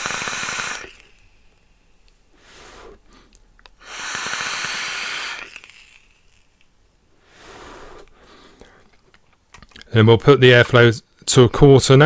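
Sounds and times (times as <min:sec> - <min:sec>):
airy hiss of vape draw: 0:00.0 - 0:01.6, 0:02.3 - 0:08.6.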